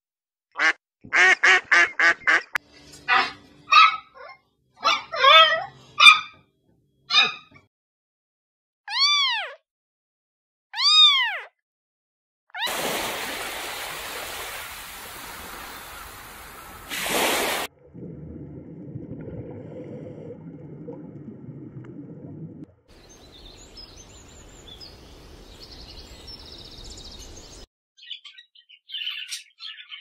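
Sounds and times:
underwater rumble: 17.7s - 25.6s
small high bird chirps: 23.0s - 30.0s.

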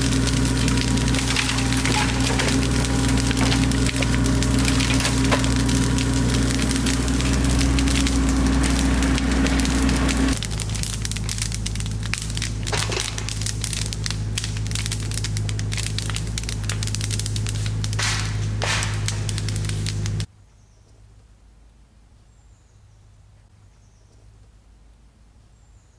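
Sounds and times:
bonfire crackling and popping: 0.0s - 20.3s
low engine hum: 0.0s - 20.3s
rushes of flame: 0.0s - 20.3s.

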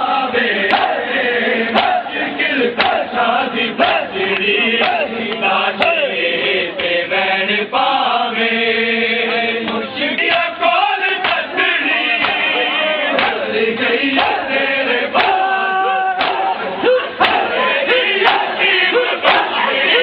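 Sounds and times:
crowd of men chanting: 0.0s - 20.0s
hands slapping bare chests: 2.8s - 3.1s, 3.8s - 6.0s, 11.2s - 11.5s, 12.2s - 12.4s, 13.1s - 13.5s, 14.1s - 14.4s, 15.2s - 15.4s, 16.2s - 16.5s, 17.2s - 17.5s.

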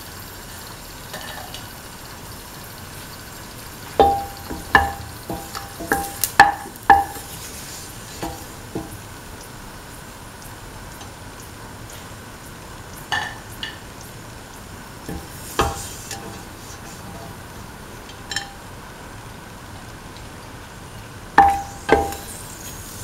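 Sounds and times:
faint sizzle: 0.0s - 23.0s
spatula knocking on steel pan: 4.0s - 7.3s, 8.2s - 9.0s, 15.1s - 16.4s, 21.4s - 22.3s.

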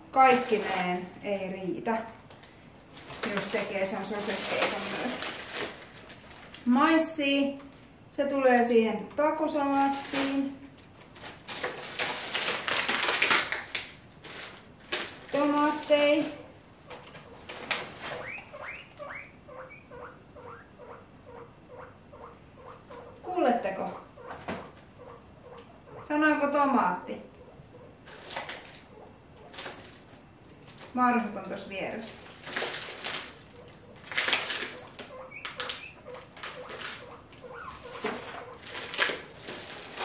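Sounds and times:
plastic bag rustling: 0.0s - 1.5s, 2.3s - 6.8s, 9.5s - 18.7s, 28.0s - 40.0s
guinea pigs wheeking: 16.4s - 28.1s, 33.2s - 40.0s.

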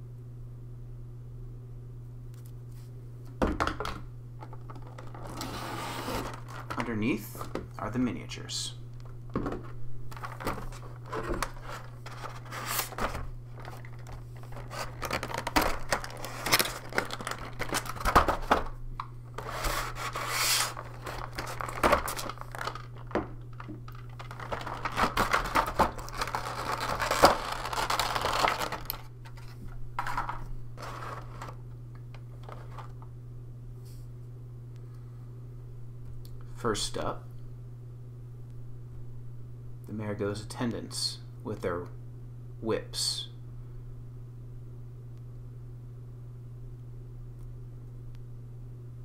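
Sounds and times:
steady low hum: 0.0s - 49.0s
plastic packaging crinkling and tearing: 4.6s - 7.0s, 10.1s - 18.7s, 19.4s - 31.6s.

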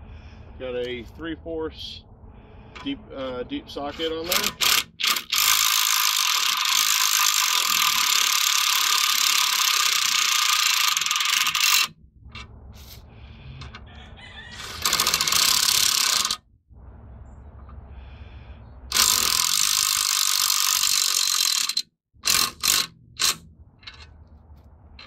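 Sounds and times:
impact wrench hammering: 4.1s - 11.9s, 18.9s - 24.1s.

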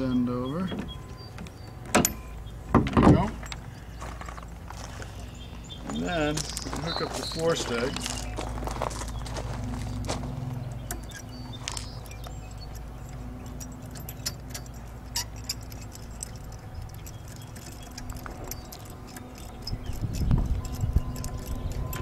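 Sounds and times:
metal rigging clicks and clinks: 5.2s - 22.0s
wind rumbling on microphone: 16.3s - 22.0s.

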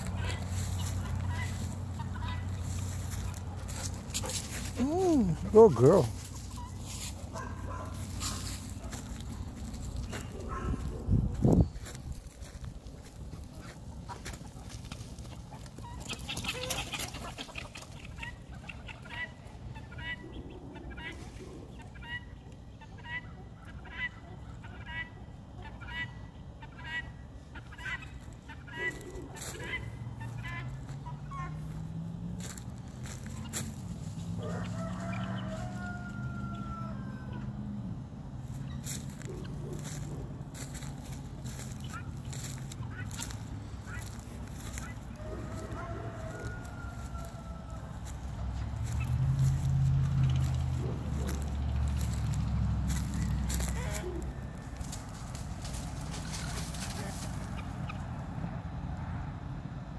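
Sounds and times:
footsteps in dry leaves: 0.0s - 17.3s, 28.2s - 36.8s, 38.4s - 57.8s
chickens clucking: 0.0s - 58.6s
rooster crowing: 34.4s - 37.7s, 44.0s - 52.3s, 52.9s - 55.2s.

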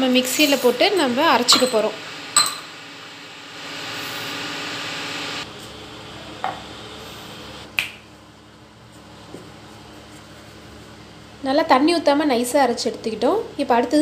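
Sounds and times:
cups clinking against jar: 1.0s - 2.7s.

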